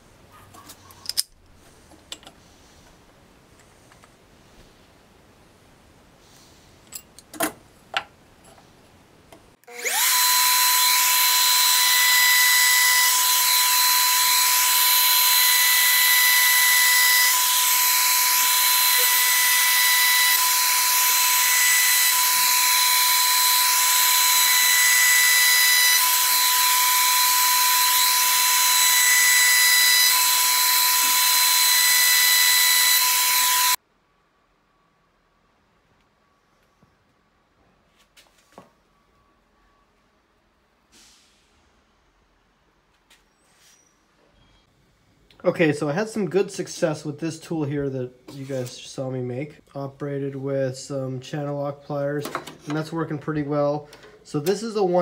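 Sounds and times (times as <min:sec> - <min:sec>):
trim router whining: 0:09.6 - 0:33.8.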